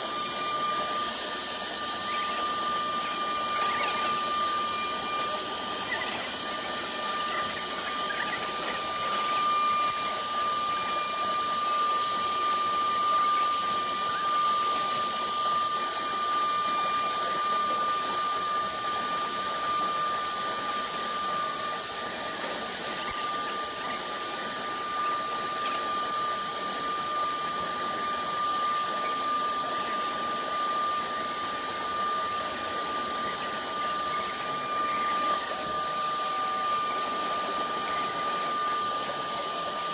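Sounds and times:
bit engraving hiss: 0:00.0 - 0:15.3
router spindle high-pitched whine: 0:00.0 - 0:39.9.

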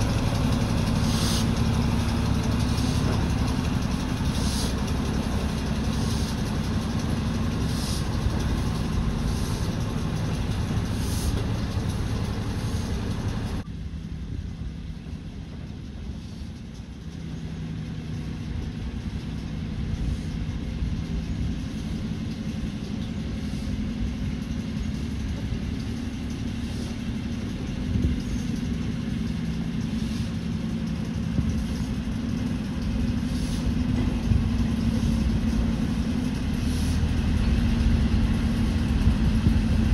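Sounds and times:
low mechanical rumble with hum: 0:00.0 - 0:39.9
short hissing pulses: 0:00.9 - 0:13.4, 0:33.1 - 0:33.9.

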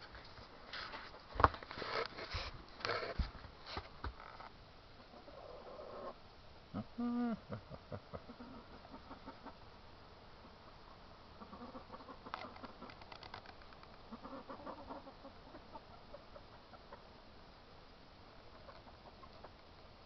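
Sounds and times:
chickens clucking: 0:06.8 - 0:09.7, 0:10.4 - 0:13.0, 0:14.0 - 0:17.2, 0:18.5 - 0:19.8.

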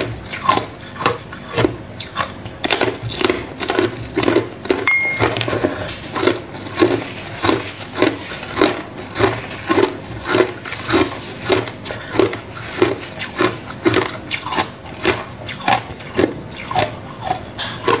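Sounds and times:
ice being chewed: 0:00.0 - 0:18.0.

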